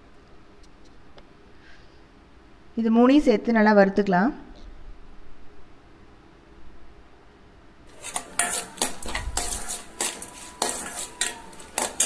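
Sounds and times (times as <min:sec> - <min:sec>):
spatula scraping steel pan: 0:07.9 - 0:12.0.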